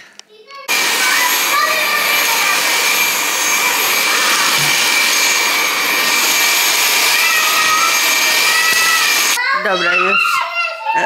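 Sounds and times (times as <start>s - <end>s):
stick vacuum cleaner running: 0.7s - 9.4s.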